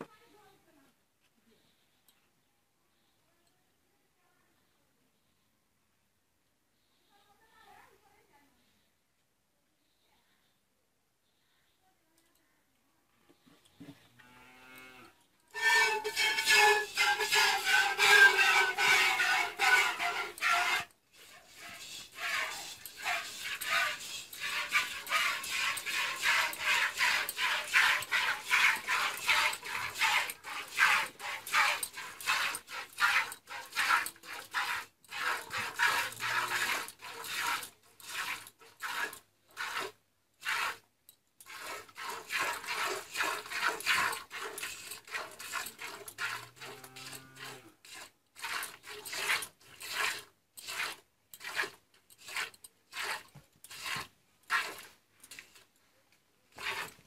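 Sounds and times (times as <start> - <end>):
milk squirting into pail: 15.6 - 40.8, 41.4 - 55.7, 56.5 - 57.0.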